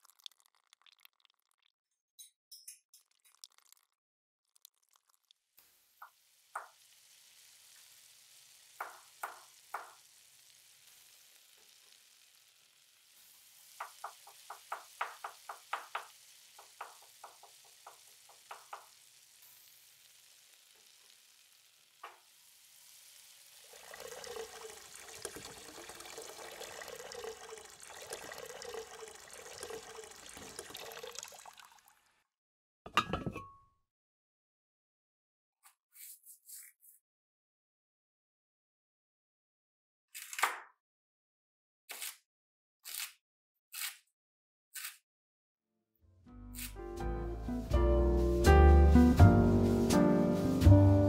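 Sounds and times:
water pouring into pot: 0.0s - 1.7s, 3.0s - 32.2s
food sizzling in oil: 5.6s - 31.7s.

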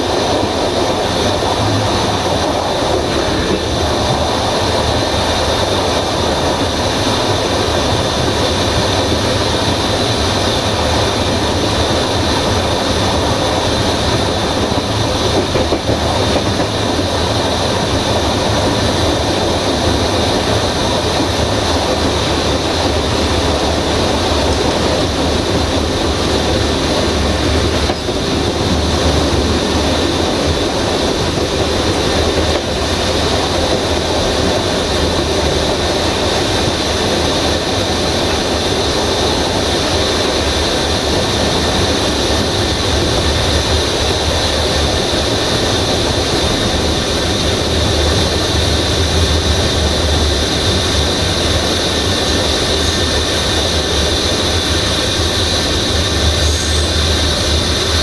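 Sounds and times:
train wheels rumbling on rails: 0.0s - 58.0s
high squeal: 55.4s - 58.0s.

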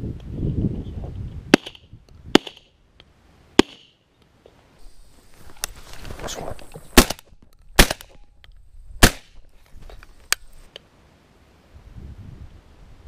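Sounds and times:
shotgun shots: 7.0s - 8.2s, 9.0s - 9.4s.

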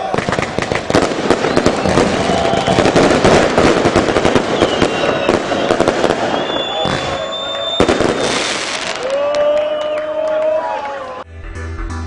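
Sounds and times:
fireworks crackling and popping: 0.0s - 9.3s.

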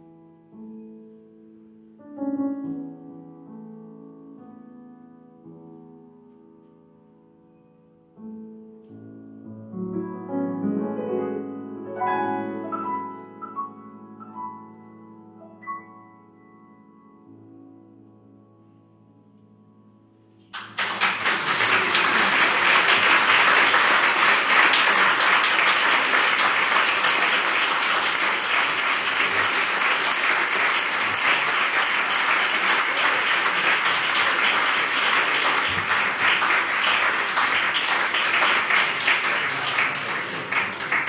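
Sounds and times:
piano notes: 0.0s - 41.0s
audience applauding: 20.5s - 41.0s.

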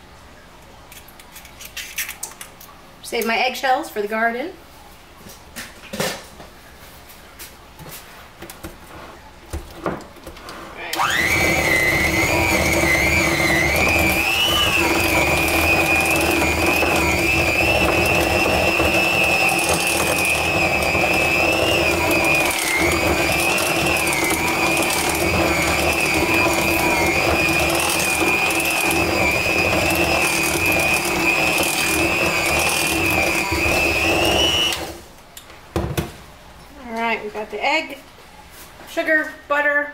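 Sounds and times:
electric hand mixer whining: 11.0s - 35.0s.

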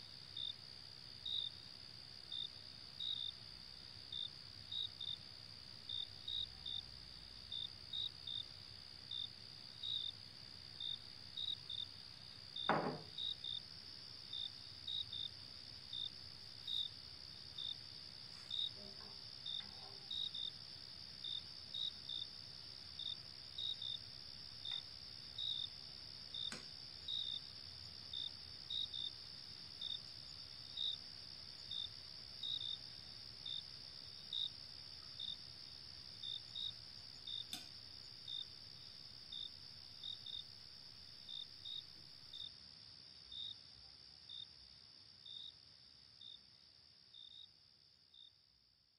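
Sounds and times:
crickets chirping: 0.0s - 48.5s
steady high insect trill: 0.0s - 48.5s
single knock: 12.7s - 13.2s.

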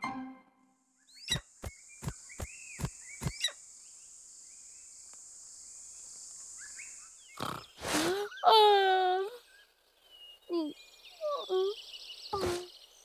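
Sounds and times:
crickets chirring: 1.0s - 8.5s.

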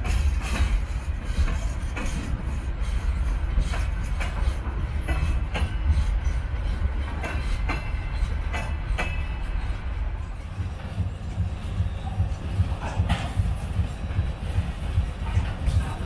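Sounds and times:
low rumble of train: 0.0s - 16.0s
train wheels clacking over rail joint: 0.0s - 16.0s.

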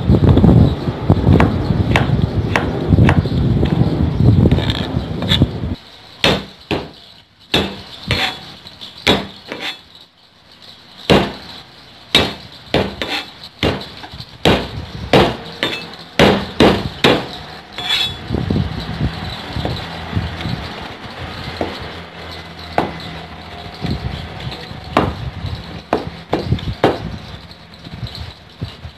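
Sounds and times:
low rumbling noise: 0.0s - 5.8s, 14.0s - 28.9s.

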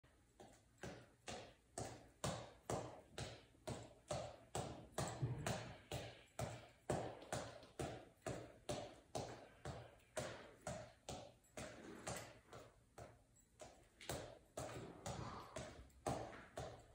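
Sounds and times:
gloved fists tapping a ball: 0.4s - 16.9s.

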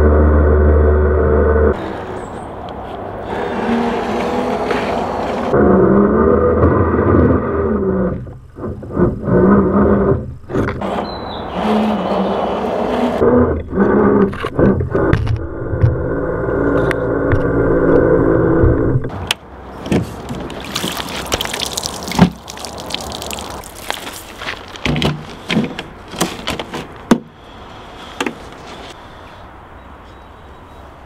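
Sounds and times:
water sloshing and splashing: 19.8s - 26.0s.

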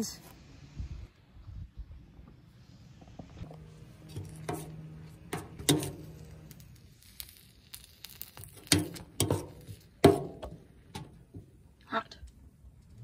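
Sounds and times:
spoon stirring beans: 3.5s - 6.8s.

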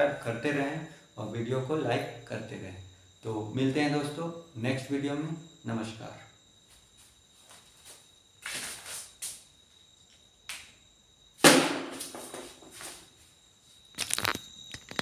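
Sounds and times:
scuffs and knocks in a room: 6.4s - 10.8s, 12.0s - 13.9s.

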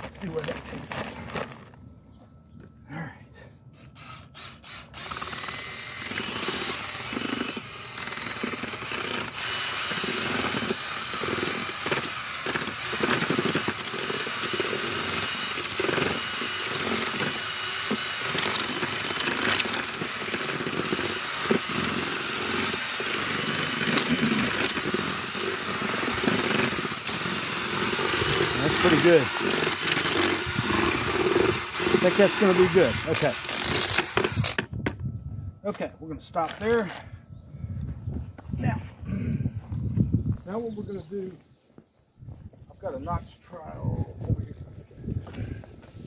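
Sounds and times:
cordless drill mixing mortar: 3.8s - 34.8s, 35.7s - 37.1s.

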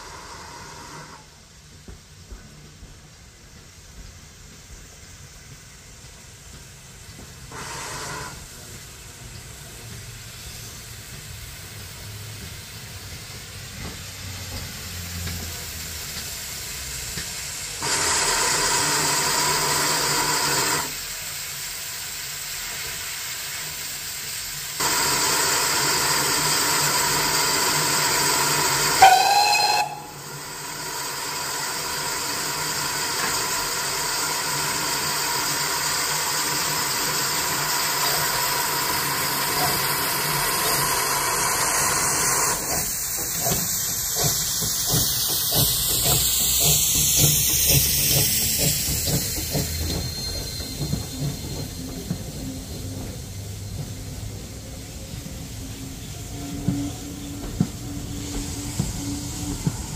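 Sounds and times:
hiss of steam: 0.0s - 59.9s
steam locomotive rumble: 0.0s - 59.9s
steam whistle: 28.1s - 30.7s.

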